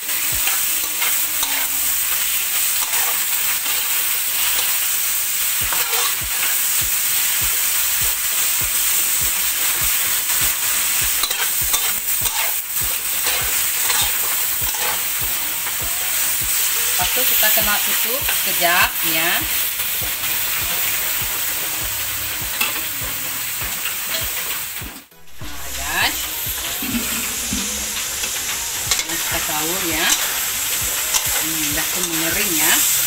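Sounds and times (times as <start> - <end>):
fish sizzling in hot oil: 0.0 - 33.0
metal spatula scraping wok: 5.7 - 6.5, 13.2 - 15.1, 25.3 - 30.5.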